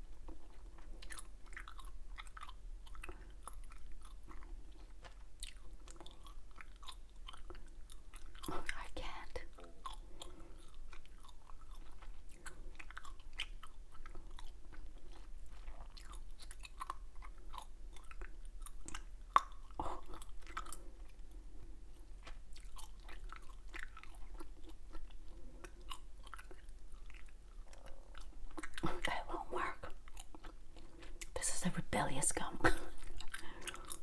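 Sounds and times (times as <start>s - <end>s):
gum chewing mouth clicks: 0.1s - 31.4s, 32.9s - 34.0s.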